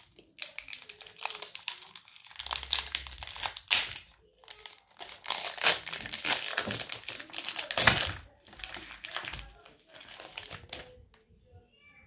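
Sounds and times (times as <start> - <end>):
foil pack crinkling and tearing: 0.0 - 11.0.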